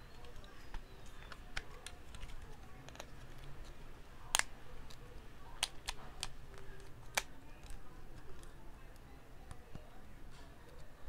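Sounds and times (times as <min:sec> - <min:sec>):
plastic toy joints clicking: 0:05.6 - 0:07.8.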